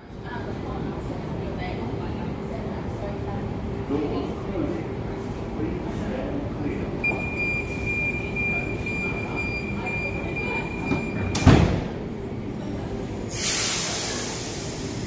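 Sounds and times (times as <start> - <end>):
low rumble of standing train: 0.0 - 15.0
high-pitched warning tone: 7.0 - 11.4
air hiss: 13.3 - 15.0.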